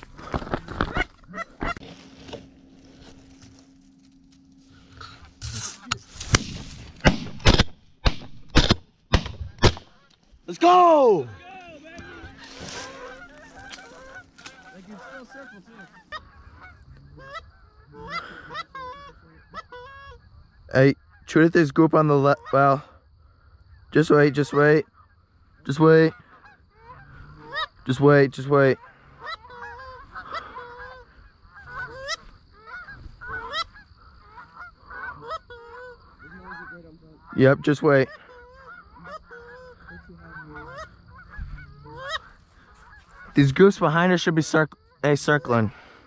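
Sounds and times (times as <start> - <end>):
geese honking: 0.0 - 6.2, 9.5 - 46.0.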